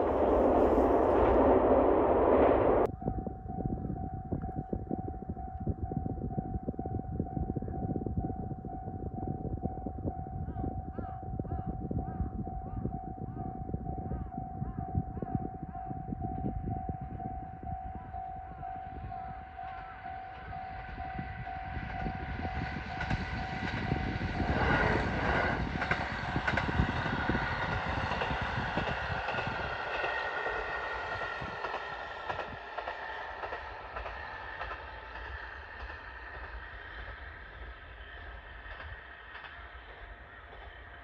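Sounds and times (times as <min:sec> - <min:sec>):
diesel railcar passing: 0:00.0 - 0:02.9, 0:16.4 - 0:41.0
wheels on rails: 0:00.0 - 0:02.9, 0:16.2 - 0:41.0
pulsing steady tone: 0:00.0 - 0:10.9, 0:11.8 - 0:41.0.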